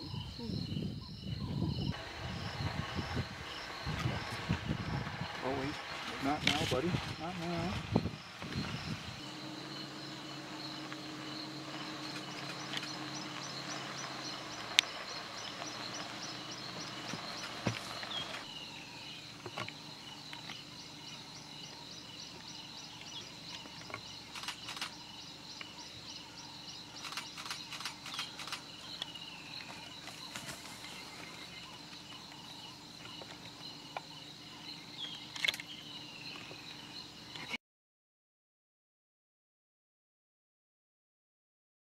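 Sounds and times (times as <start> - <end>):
chirping pulses: 0.0 - 37.5
insect drone: 0.0 - 37.6.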